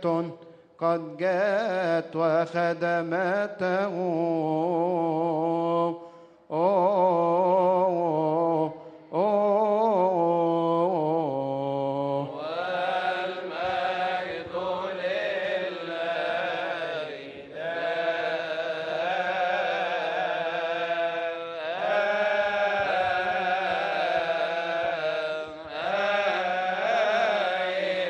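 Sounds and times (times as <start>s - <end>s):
choir chanting in unison: 6.5s - 28.0s.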